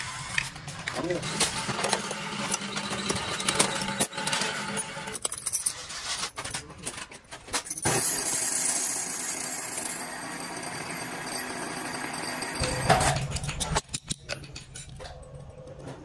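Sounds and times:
machine whir: 0.0 - 5.3, 7.8 - 13.8.

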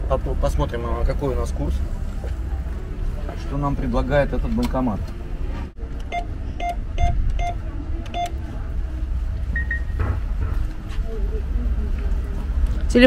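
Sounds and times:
low rumble: 0.0 - 13.0
keypad beeps: 6.0 - 8.4, 9.6 - 10.0.

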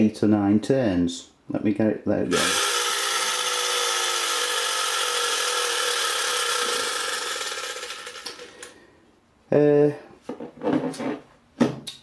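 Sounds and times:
clockwork motor whirring: 2.3 - 8.7.

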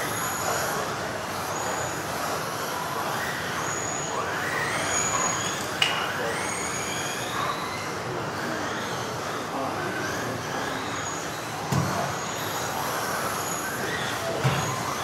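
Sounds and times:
electric rc car motors whining: 0.0 - 15.0.

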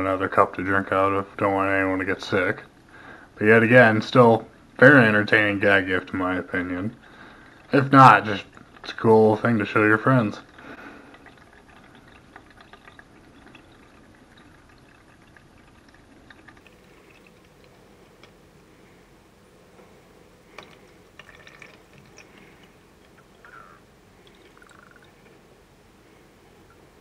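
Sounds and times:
water dripping into bucket: 7.6 - 27.0.

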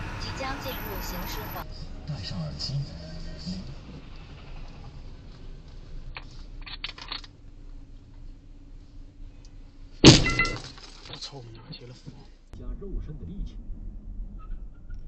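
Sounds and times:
loud car collision thump: 10.0 - 10.8.

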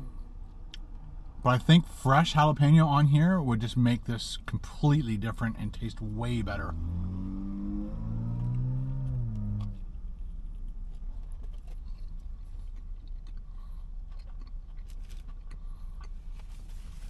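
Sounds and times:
steady low rumble: 0.0 - 17.0
person chewing food: 8.4 - 17.0.

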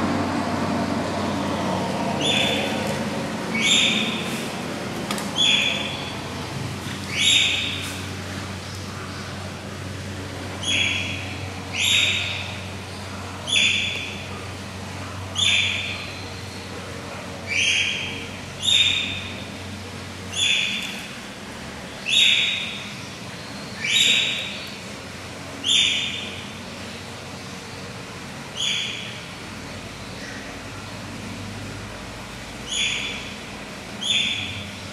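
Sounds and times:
otter squeaking calls: 2.2 - 2.8, 3.5 - 4.3, 5.4 - 6.2.

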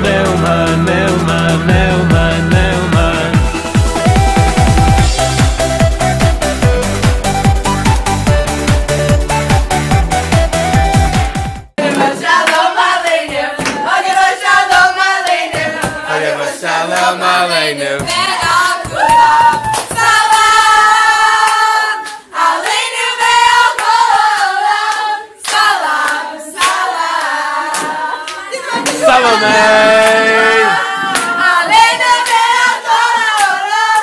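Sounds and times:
hand clapping: 11.8 - 14.4, 16.9 - 17.2, 18.0 - 20.5, 21.4 - 32.6, 33.3 - 34.0
young women singing together: 11.8 - 34.0.

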